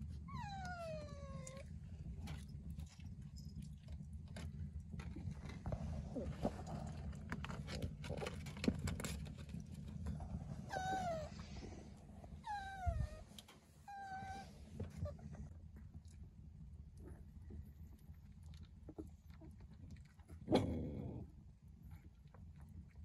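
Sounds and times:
puppy whining: 0.0 - 2.2, 10.6 - 15.5.

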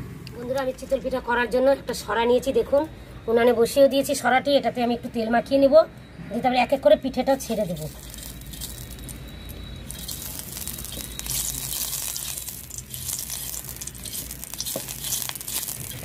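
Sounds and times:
oil sizzling on a hot pan: 7.8 - 9.2, 9.9 - 16.0.

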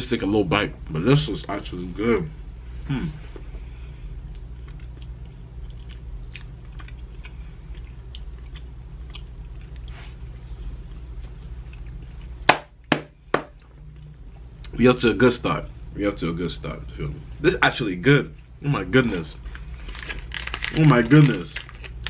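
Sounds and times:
low room hum: 0.0 - 22.0
person chewing soft food: 4.1 - 12.5.

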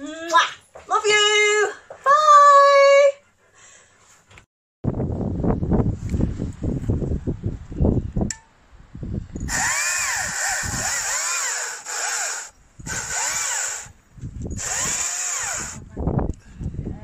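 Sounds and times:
chain rasping through wood: 9.4 - 15.8
chainsaw motor whine: 9.5 - 15.8.

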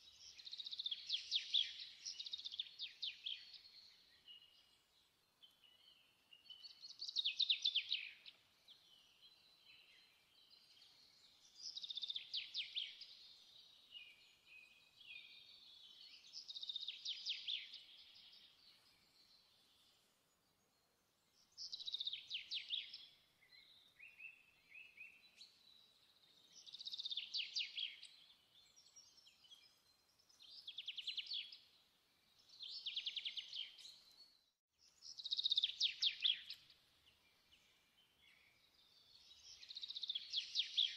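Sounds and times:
faint bird chirps: 0.0 - 40.9.

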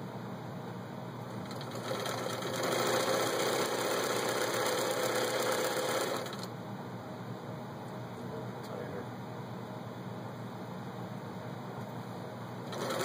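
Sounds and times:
sewing machine stitching: 1.4 - 6.5, 12.6 - 13.0.

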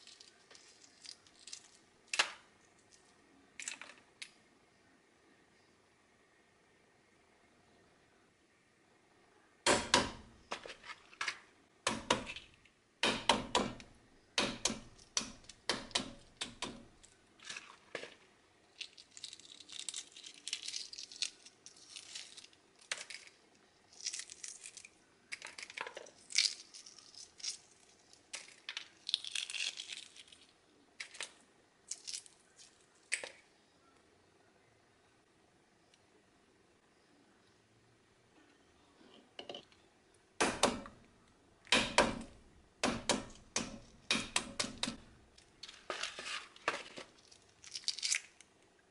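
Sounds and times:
eggshell crackling as peeled: 0.0 - 4.0, 14.7 - 33.4, 43.3 - 48.7.

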